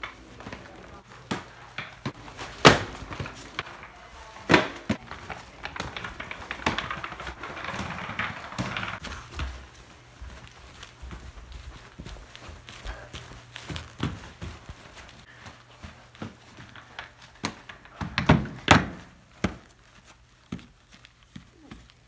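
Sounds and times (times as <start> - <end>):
inline skates knocking on hard floor: 0.0 - 10.4, 11.0 - 19.8
skate wheels rolling on wooden floor: 0.0 - 22.0.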